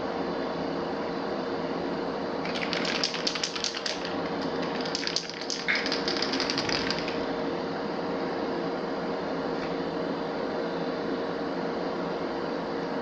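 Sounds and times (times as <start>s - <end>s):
extraction fan humming: 0.0s - 13.0s
spray can rattling: 2.4s - 7.2s.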